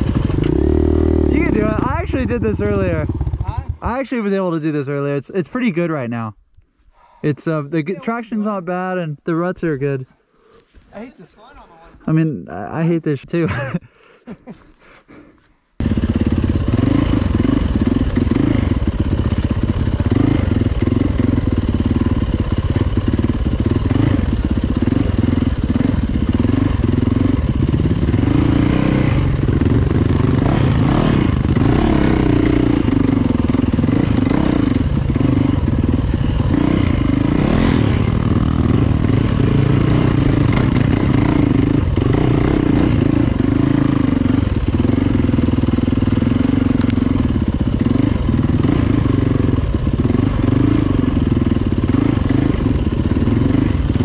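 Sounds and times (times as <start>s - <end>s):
dirt bike engine running: 0.0s - 4.2s, 15.8s - 54.0s.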